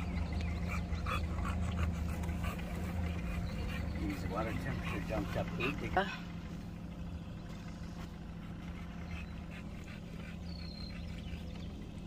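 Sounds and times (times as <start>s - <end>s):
outboard motor idling: 0.0s - 12.0s.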